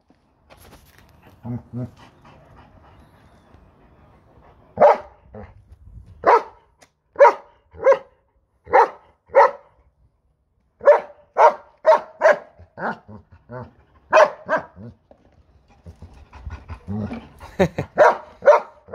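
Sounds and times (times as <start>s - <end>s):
dog barking: 4.8s - 5.5s, 6.2s - 6.6s, 7.2s - 9.7s, 10.8s - 13.1s, 14.1s - 14.8s, 18.0s - 18.9s.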